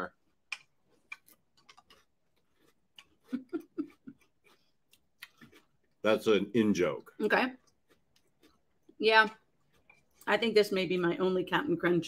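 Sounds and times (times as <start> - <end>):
cereal chewing crunches: 0.3 - 6.4, 7.6 - 10.3.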